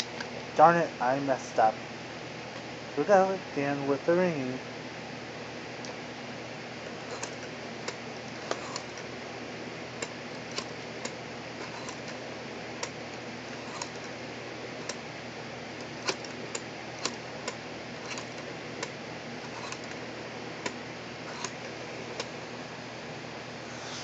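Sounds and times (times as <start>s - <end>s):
steady hiss: 20.6s - 24.0s.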